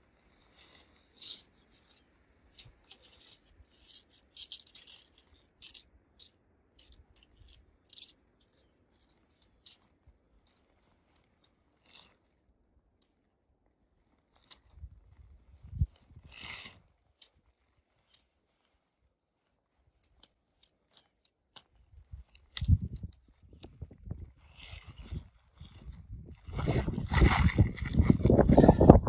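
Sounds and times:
tent nylon rustling: 0:00.0 - 0:04.4, 0:08.4 - 0:28.8.

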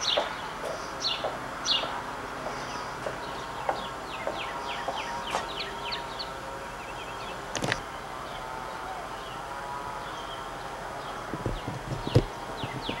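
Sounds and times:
small birds chirping: 0:00.0 - 0:13.0
steady hum: 0:00.0 - 0:13.0.

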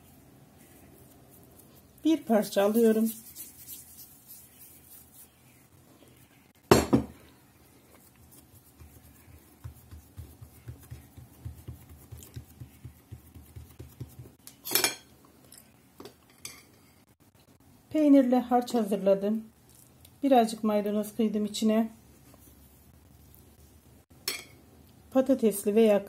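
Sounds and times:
hands patting dough on board: 0:08.0 - 0:14.4
dishes clinking: 0:14.6 - 0:15.1, 0:24.2 - 0:24.6.

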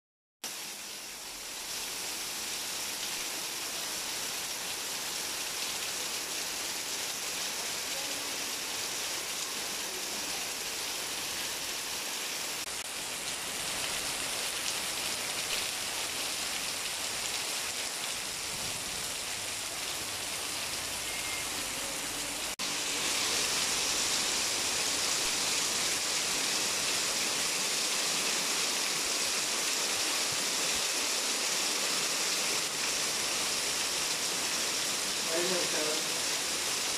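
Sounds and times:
heavy rain pouring: 0:00.5 - 0:36.9.

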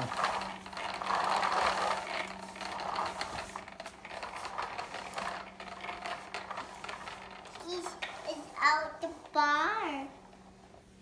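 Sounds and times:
toy tractor rattling on wood floor: 0:00.0 - 0:10.9.

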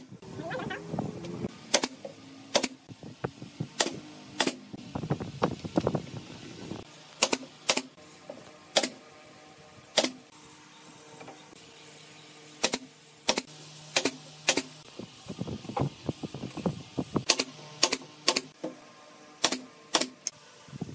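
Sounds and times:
nail gun shots: 0:01.7 - 0:02.8, 0:03.8 - 0:04.7, 0:07.2 - 0:07.9, 0:08.7 - 0:09.0, 0:09.9 - 0:10.3, 0:12.6 - 0:14.7, 0:17.2 - 0:18.5, 0:19.4 - 0:20.3.

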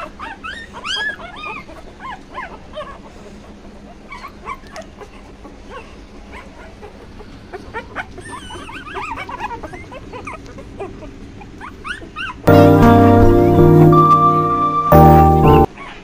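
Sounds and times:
puppies whimpering and squeaking: 0:00.0 - 0:16.0.

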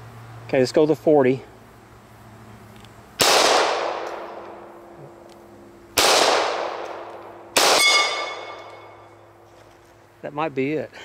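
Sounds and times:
pistol shots with echo: 0:03.2 - 0:04.7, 0:06.0 - 0:09.0
steel target ringing: 0:06.4 - 0:09.4.

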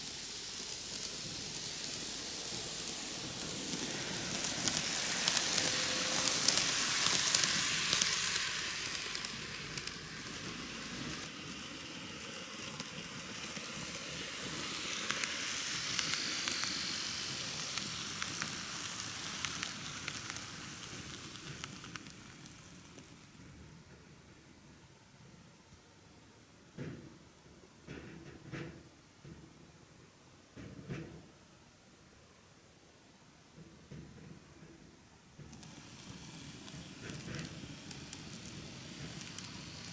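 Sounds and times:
model train crackling hiss: 0:00.0 - 0:23.7, 0:35.3 - 0:39.9
sharp clicks of model train: 0:00.0 - 0:24.4, 0:33.6 - 0:39.9.

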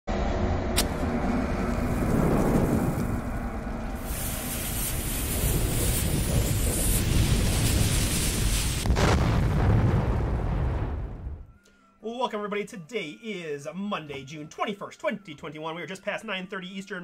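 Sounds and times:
deep rumble: 0:00.1 - 0:11.5
burning fuse hissing: 0:00.8 - 0:09.5.

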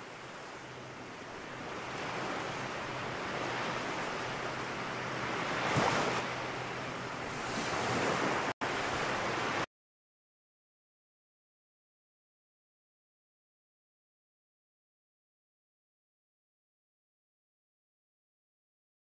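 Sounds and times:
ocean surf washing onto beach: 0:00.0 - 0:09.7.

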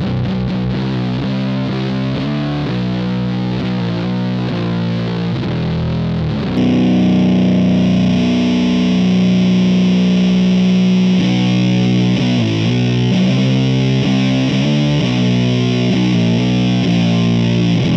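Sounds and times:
fuzzy electric guitar: 0:00.0 - 0:17.9.

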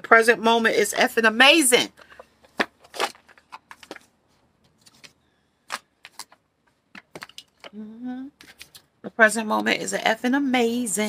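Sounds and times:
cards clicking and tapping: 0:05.7 - 0:07.7.

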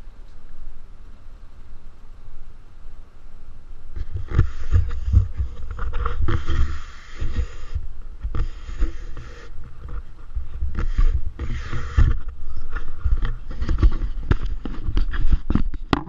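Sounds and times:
wind buffeting microphone: 0:03.9 - 0:15.9.

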